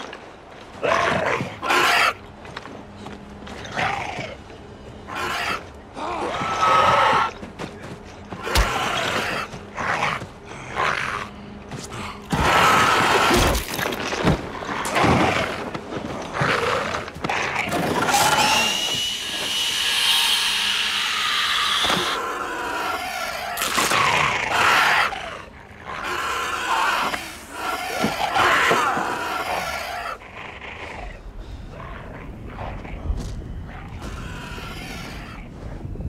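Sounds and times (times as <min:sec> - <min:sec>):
creature snarling and screeching: 0:12.3 - 0:13.8, 0:16.4 - 0:32.3, 0:33.7 - 0:35.5.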